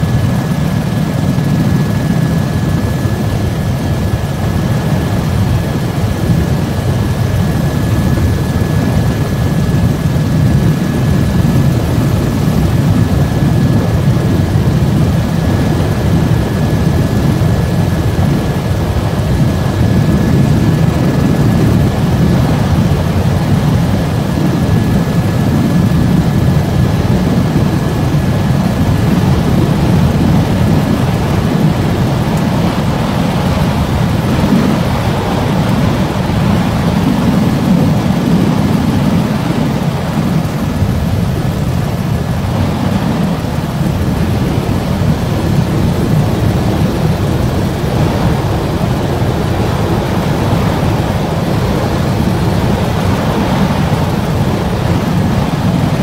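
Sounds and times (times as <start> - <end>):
aircraft cabin rumble: 0.0 - 56.0.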